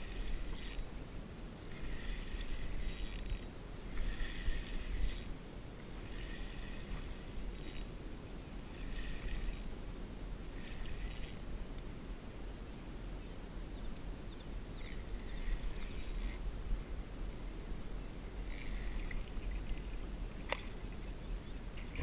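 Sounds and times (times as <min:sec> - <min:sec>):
fishing reel whirring: 0:00.0 - 0:00.9, 0:01.7 - 0:08.0, 0:08.6 - 0:09.8, 0:10.4 - 0:11.5, 0:14.4 - 0:16.4, 0:18.4 - 0:21.0
low wind rumble: 0:00.0 - 0:22.0.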